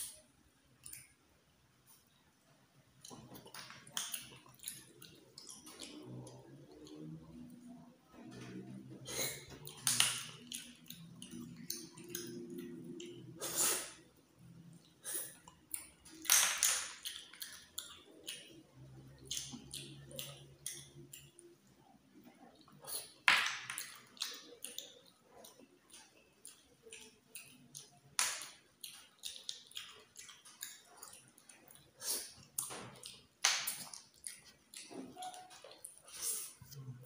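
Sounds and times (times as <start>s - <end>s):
wet mouth clicks and lip smacks: 3.0s - 7.1s, 15.1s - 18.6s, 23.8s - 36.5s.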